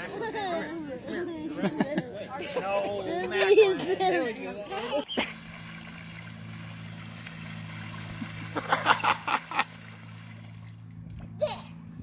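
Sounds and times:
splashing in muddy puddle: 5.2s - 11.3s.

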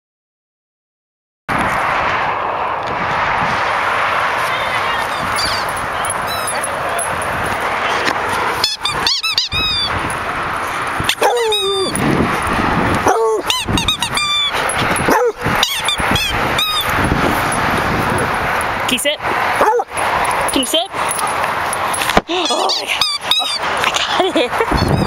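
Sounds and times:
dog whining and yipping: 8.6s - 10.0s, 11.0s - 12.0s, 13.0s - 17.0s, 22.3s - 23.6s.

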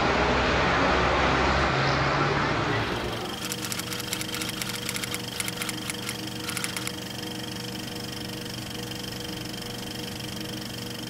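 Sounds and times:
machine hum: 2.8s - 11.0s
typing clicks: 3.2s - 7.0s.

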